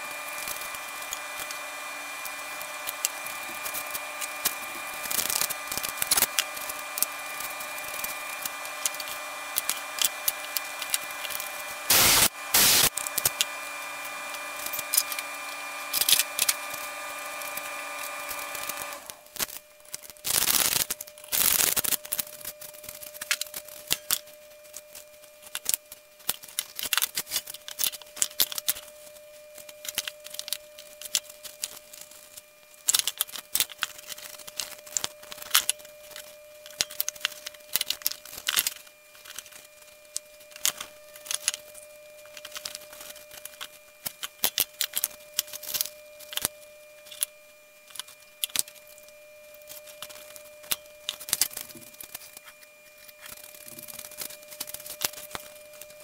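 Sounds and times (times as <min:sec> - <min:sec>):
loud bursts of noise: 0:00.0 - 0:19.1
faint steady hum: 0:00.0 - 0:56.0.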